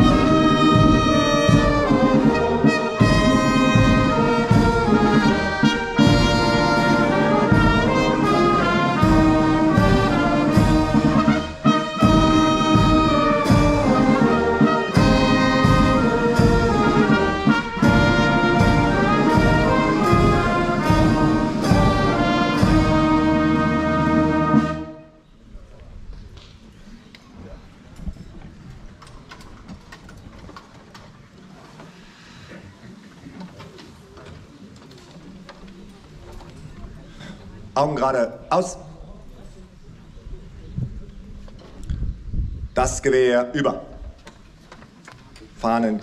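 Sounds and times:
brass band playing slow chords: 0:00.0 - 0:25.2.

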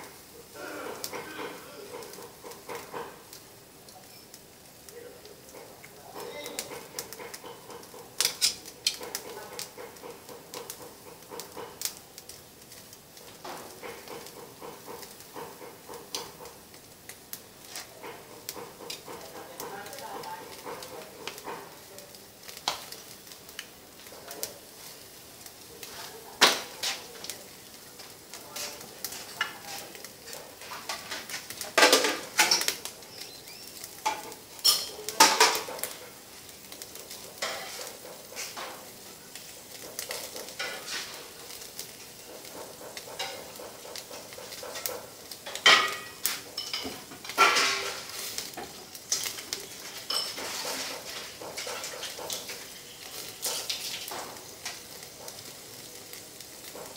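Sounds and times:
charcoal crackles and pops: 0:00.0 - 0:56.9
meat sizzling on a grill: 0:00.0 - 0:56.9.

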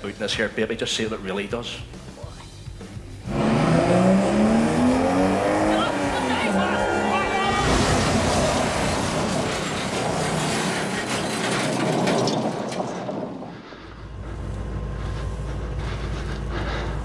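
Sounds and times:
car engine and tyre noise: 0:03.2 - 0:17.0
clattering: 0:08.4 - 0:13.6
steady low hum: 0:13.5 - 0:17.0.

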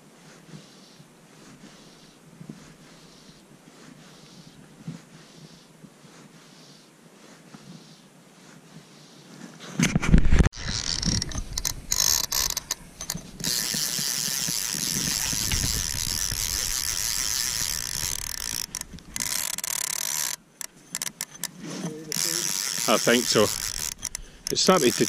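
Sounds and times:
fishing reel buzzing: 0:10.5 - 0:25.0.

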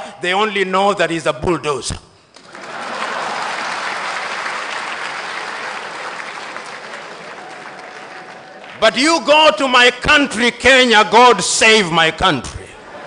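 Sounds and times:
audience applauding: 0:02.4 - 0:09.2.

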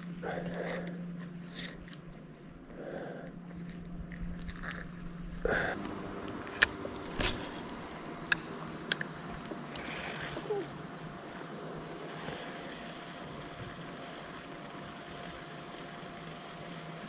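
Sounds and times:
fishing rod and reel clicks: 0:00.0 - 0:02.1, 0:03.2 - 0:05.5, 0:06.2 - 0:11.2
steady low hum: 0:00.0 - 0:17.0.

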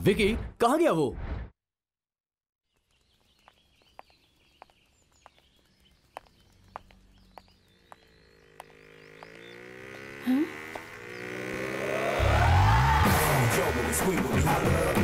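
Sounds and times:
birds chirping: 0:02.7 - 0:12.2
footsteps on pavement: 0:02.8 - 0:10.9
background music: 0:12.2 - 0:15.0.

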